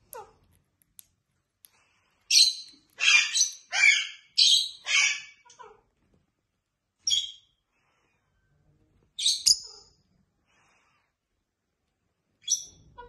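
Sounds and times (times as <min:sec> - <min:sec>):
bird chirping: 0:02.3 - 0:05.6, 0:07.0 - 0:07.6, 0:09.2 - 0:10.0, 0:12.4 - 0:13.0.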